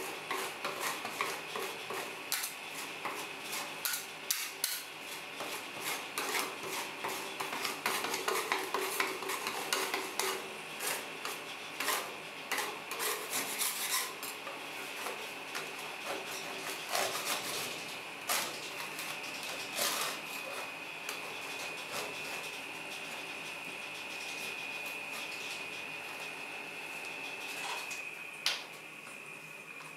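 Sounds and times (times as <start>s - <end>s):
metal spatulas scraping cold plate: 5.8s - 14.4s.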